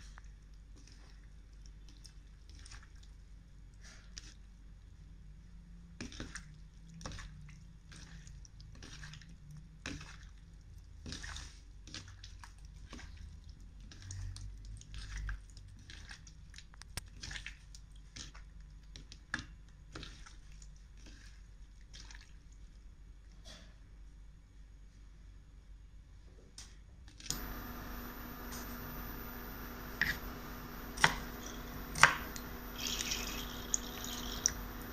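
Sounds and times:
wet squelches and splashes: 0.7 - 3.3, 6.0 - 22.8
faint low hum: 27.3 - 34.9.

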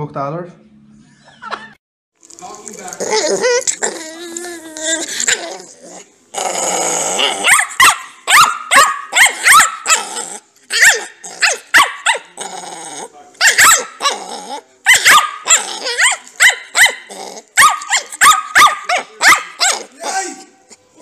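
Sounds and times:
puppy growling: 2.4 - 8.5, 9.1 - 21.0
puppy yipping: 7.4 - 10.0, 10.7 - 12.4, 13.4 - 14.2, 14.9 - 19.9.

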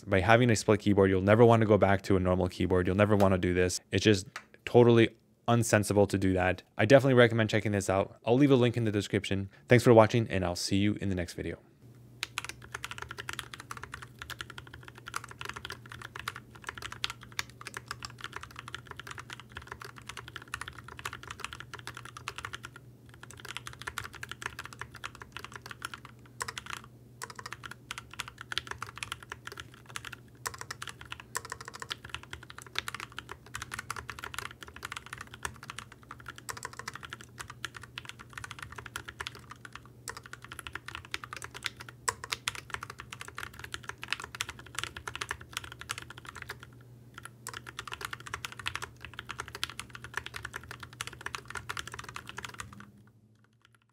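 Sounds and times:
fast typing on mechanical keyboard: 12.2 - 52.8, 53.4 - 53.9.

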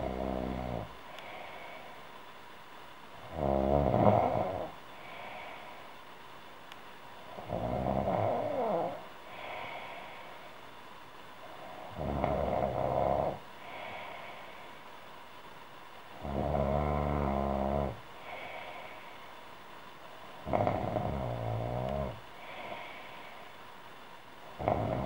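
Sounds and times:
woman snoring: 0.0 - 1.9, 3.2 - 5.8, 7.3 - 10.3, 11.4 - 14.4, 16.1 - 19.0, 20.4 - 23.5, 24.5 - 25.0
soft breaths: 0.0 - 25.0.

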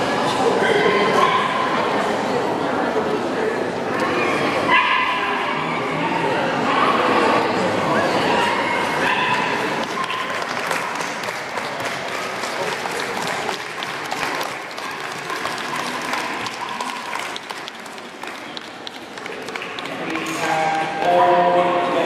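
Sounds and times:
audience applauding: 9.6 - 20.6.

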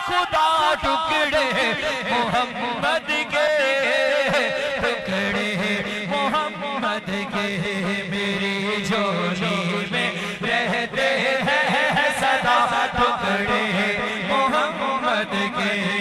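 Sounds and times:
man singing into a microphone: 0.0 - 16.0.

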